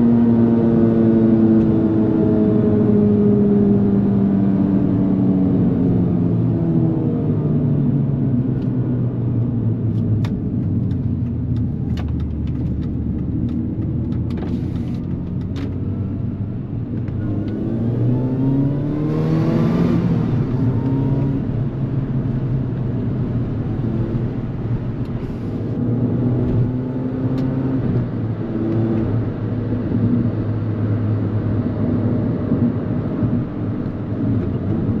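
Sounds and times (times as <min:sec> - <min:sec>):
car engine revving: 0:12.1 - 0:35.0.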